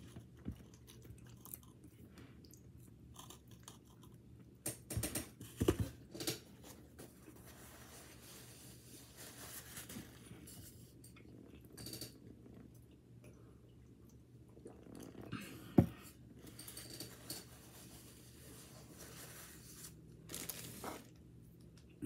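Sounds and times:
chewing pastry crust: 0.0 - 4.6.

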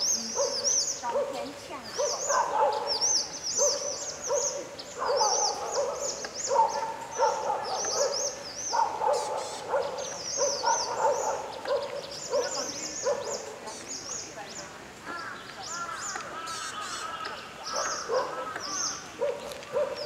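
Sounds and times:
high bird chirping: 0.0 - 14.6.

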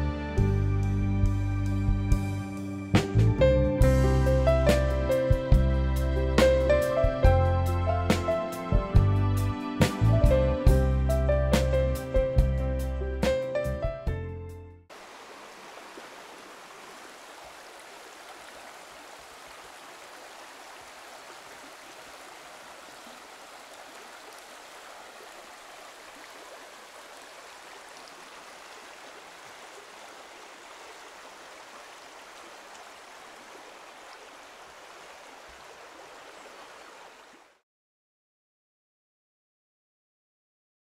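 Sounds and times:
river rushing over stones: 14.9 - 37.5.

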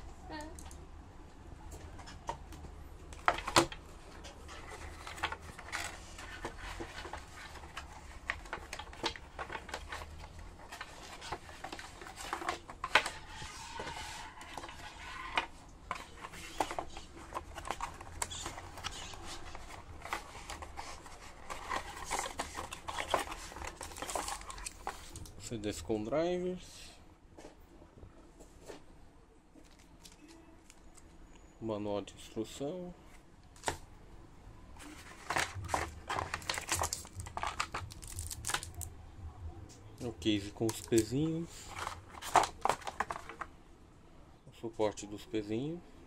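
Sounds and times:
cardboard rustling: 3.2 - 25.3, 34.8 - 38.9, 40.1 - 43.5
cardboard tapping and scraping: 34.8 - 38.7.

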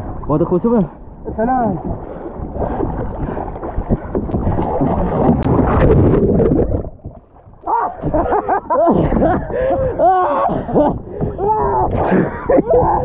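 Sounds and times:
sea water splashing: 0.0 - 13.0
wind buffeting microphone: 0.0 - 13.0
men yelping: 7.6 - 8.7.

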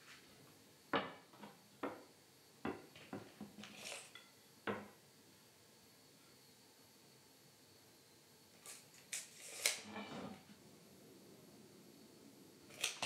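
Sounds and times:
tape measure blade rasp: 3.7 - 4.2, 9.1 - 10.2.

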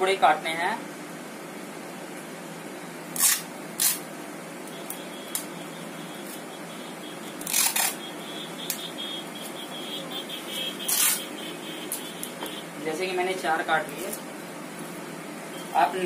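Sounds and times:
tape ripping off roll: 3.1 - 4.1, 7.4 - 8.0, 10.9 - 11.3.

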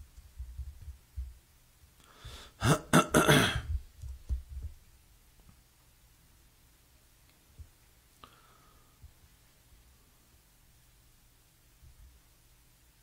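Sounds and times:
man clearing his throat: 2.6 - 3.8.

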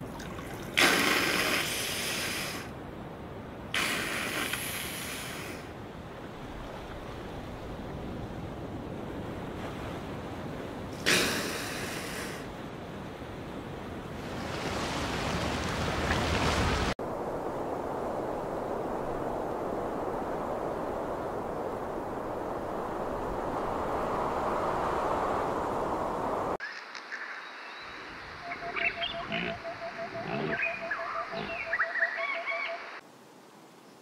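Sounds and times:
rushing splashing water: 0.0 - 2.7, 14.1 - 22.8.

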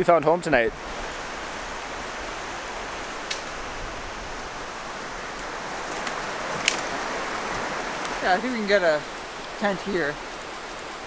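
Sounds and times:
river and waterfall rushing: 0.0 - 11.0
faint clicks: 3.2 - 3.6.

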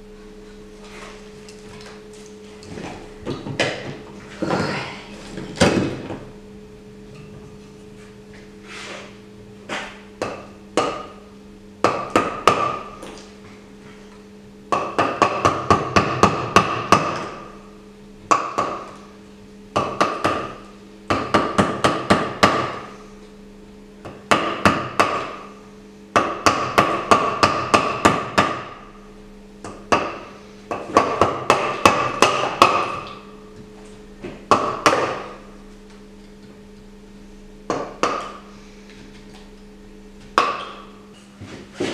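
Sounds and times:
mallet striking chisel into plaster: 34.5 - 35.4, 40.4 - 40.8.

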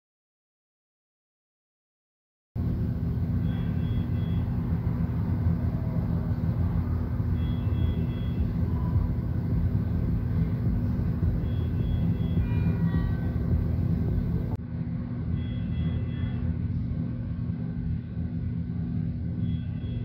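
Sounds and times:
low machine hum: 2.6 - 20.0
medical alarm short high beeps: 3.4 - 4.6, 7.3 - 9.0, 11.4 - 13.2, 15.4 - 16.5.

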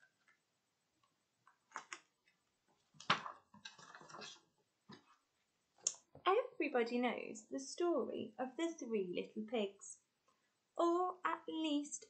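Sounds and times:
book being handled and opened: 1.5 - 5.2
page rustle: 1.6 - 2.1, 2.7 - 5.0.

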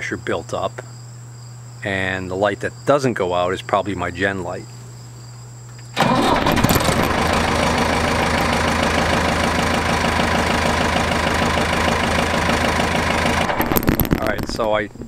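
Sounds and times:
tractor engine running: 6.0 - 15.0.

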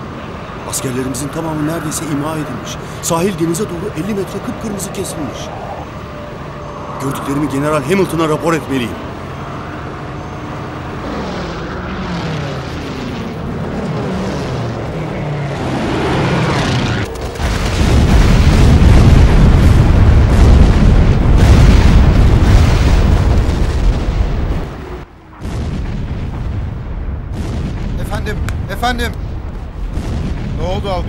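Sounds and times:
propeller plane engine droning: 0.0 - 19.2
gunfire and explosions rumbling: 0.0 - 31.0.

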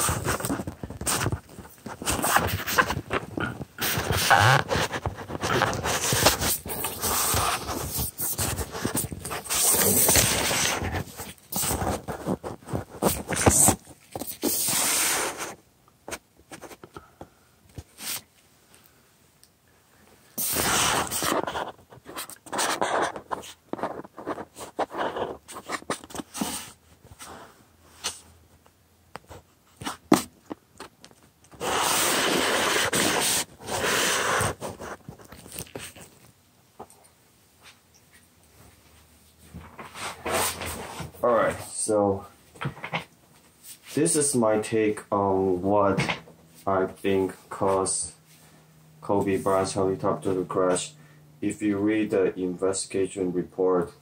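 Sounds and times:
phone handling rustling and scraping: 0.0 - 14.5, 34.4 - 37.0.

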